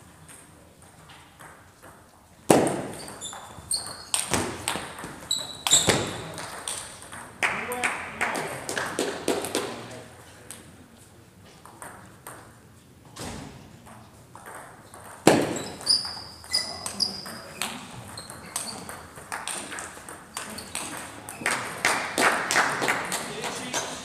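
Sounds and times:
short high squeaks: 3.0 - 4.3, 5.3 - 6.3, 15.6 - 18.9.

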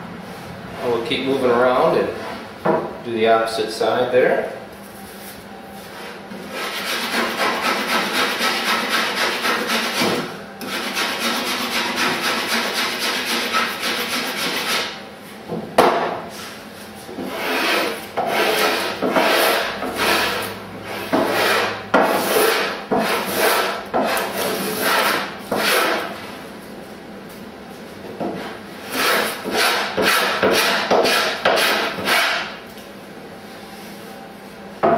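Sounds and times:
block plane rasping on wood: 6.5 - 15.0, 17.2 - 26.1, 28.4 - 32.5.

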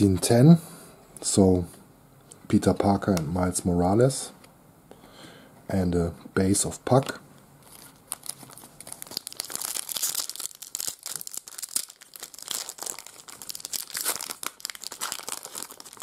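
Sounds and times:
foil wrapper crinkling and tearing: 7.6 - 16.0.

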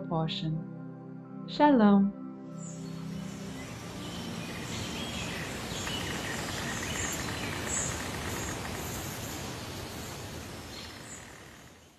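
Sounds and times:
steady background hiss: 2.6 - 11.9.

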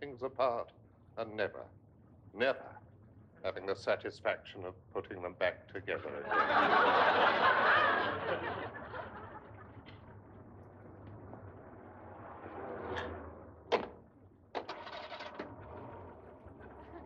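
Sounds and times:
audience laughter: 6.0 - 10.2.

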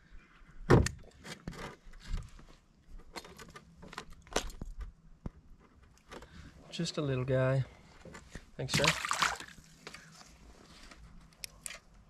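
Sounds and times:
hands handling fish and tackle: 8.0 - 12.0.

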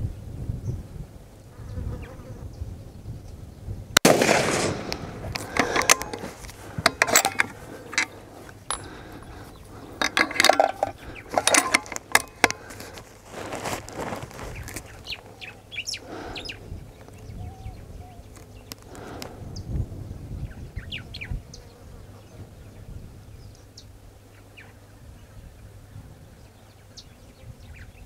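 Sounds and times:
rifle shot: 4.0 - 6.2
rifle bolt clicking: 4.9 - 9.0, 10.0 - 12.6.

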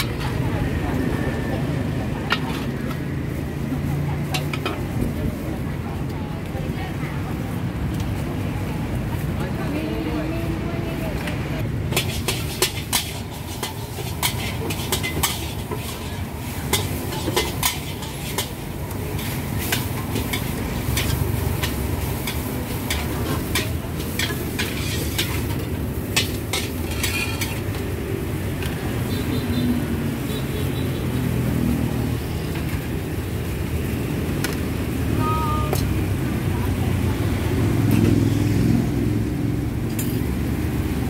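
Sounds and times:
ladles clinking against pots: 11.9 - 18.6, 19.6 - 27.6.

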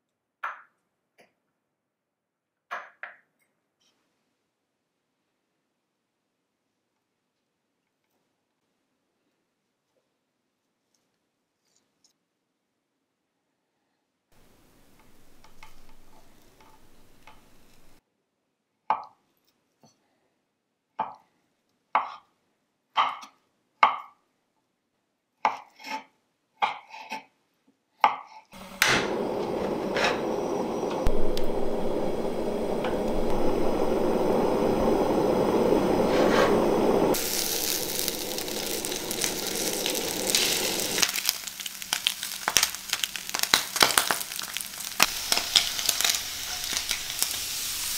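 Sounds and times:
meat sizzling in a pan: 14.8 - 18.0, 31.0 - 47.9.

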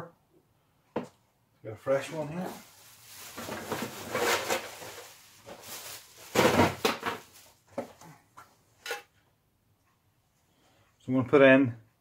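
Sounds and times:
rustling and clattering at workbench: 3.0 - 9.3.

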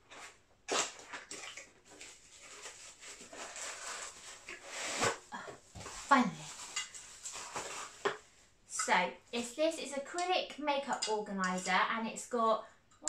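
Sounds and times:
cardboard and plastic packaging rustling: 0.0 - 8.4.

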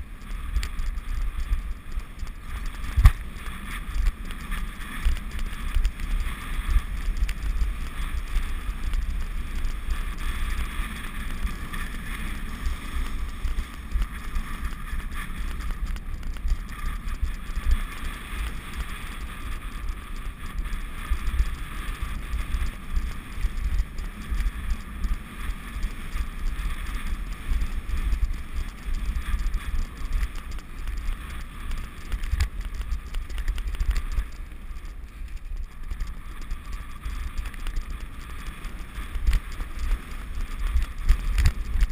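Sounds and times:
wheels rolling on grass: 0.0 - 41.9
wind buffeting microphone: 0.0 - 41.9.

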